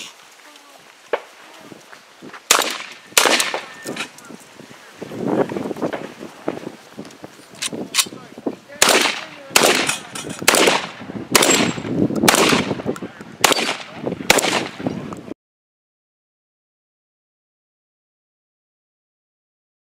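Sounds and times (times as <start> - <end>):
rifle gunshots: 2.5 - 3.8, 8.8 - 14.9.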